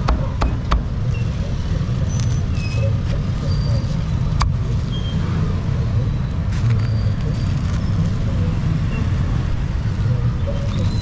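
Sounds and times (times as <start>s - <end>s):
faint voices: 0.0s - 11.0s
low traffic rumble: 0.0s - 11.0s.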